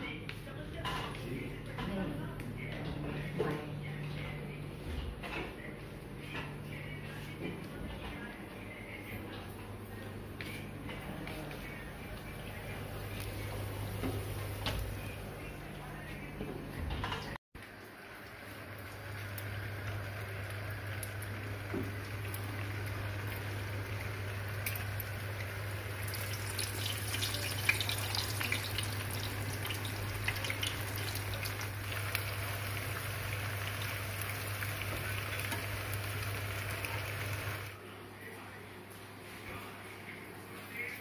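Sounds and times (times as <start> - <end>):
low steady hum: 0.0 - 41.0
deep-frying in hot oil sizzling: 17.6 - 37.7.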